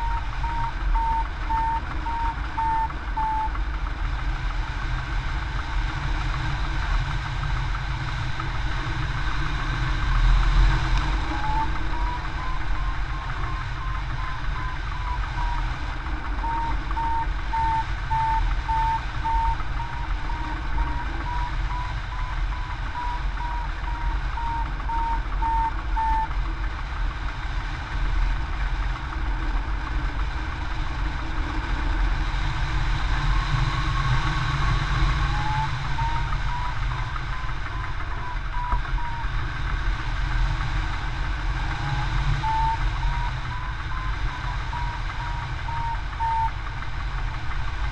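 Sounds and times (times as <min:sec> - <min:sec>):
variometer beeping: 0:00.0 - 0:03.8, 0:10.9 - 0:26.5, 0:33.5 - 0:39.7, 0:41.3 - 0:47.1.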